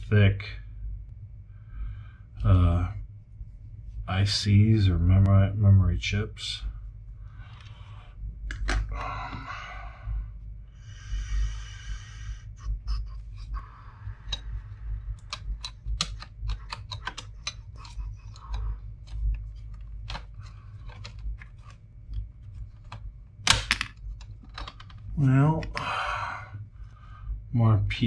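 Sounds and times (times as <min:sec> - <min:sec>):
plastic grinding and crunching: 0:15.1 - 0:25.6
plastic case cracking: 0:23.4 - 0:25.0.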